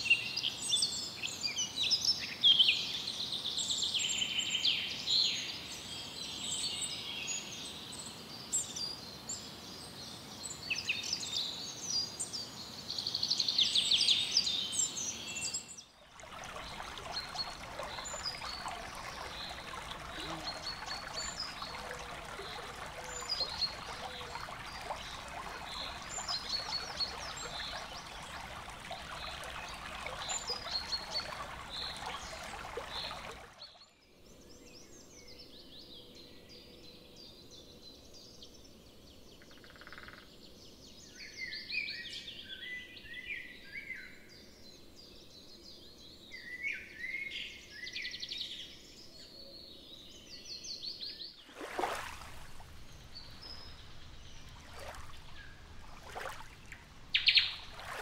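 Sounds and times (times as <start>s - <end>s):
songbirds singing: 0.0s - 58.0s
stream flowing: 16.0s - 33.8s, 51.4s - 58.0s.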